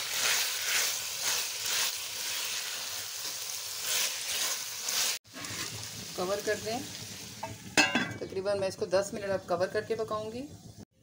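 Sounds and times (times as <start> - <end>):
spatula stirring and scraping: 0.0 - 7.6
vegetables sizzling in a pan: 0.0 - 10.9.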